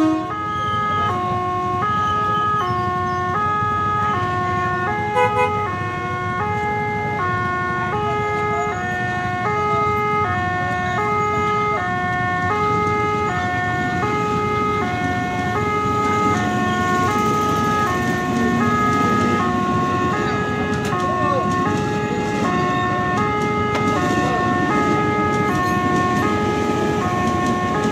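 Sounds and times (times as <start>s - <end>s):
passing electric train rumble: 0.0s - 27.9s
level crossing two-tone alarm: 6.3s - 27.9s.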